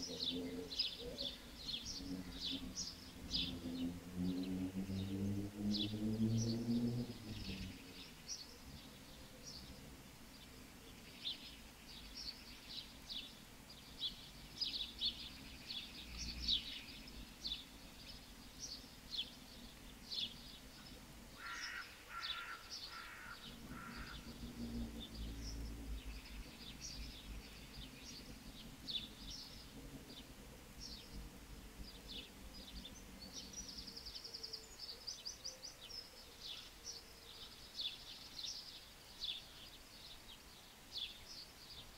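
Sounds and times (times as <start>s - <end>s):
harsh bird calls: 0.0s - 8.6s, 20.1s - 28.3s
small birds chirping: 0.0s - 41.9s.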